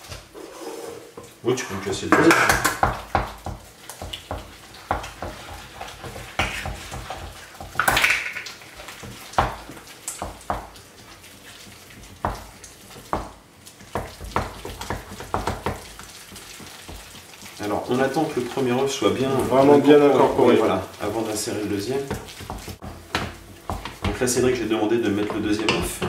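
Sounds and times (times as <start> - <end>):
spoon scraping bowl: 0.3 - 1.2
wet slapping of sticky dough: 2.2 - 24.6.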